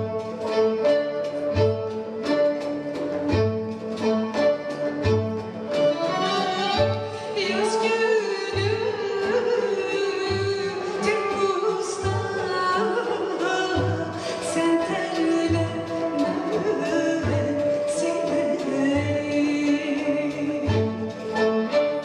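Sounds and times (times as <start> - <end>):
string ensemble playing: 0.0 - 22.0
woman singing folk song: 6.7 - 21.4.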